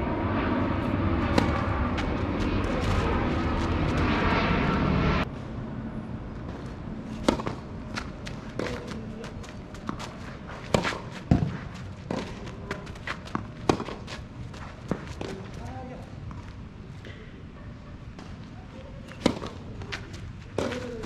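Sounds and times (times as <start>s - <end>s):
racket striking tennis ball: 1.3s - 2.1s, 7.1s - 14.2s, 19.1s - 21.0s
tennis ball bouncing: 1.3s - 2.1s, 7.2s - 14.2s, 19.1s - 21.0s
footsteps on court: 7.5s - 16.6s.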